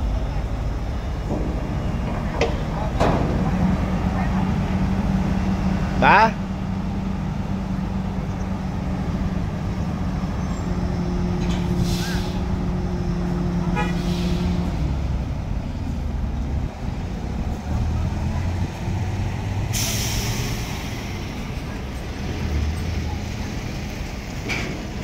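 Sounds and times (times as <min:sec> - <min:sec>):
crane droning tone: 0:00.0 - 0:05.8
diesel engine rumble: 0:00.0 - 0:25.0
air hissing: 0:11.7 - 0:12.6, 0:13.9 - 0:14.8, 0:19.7 - 0:21.0.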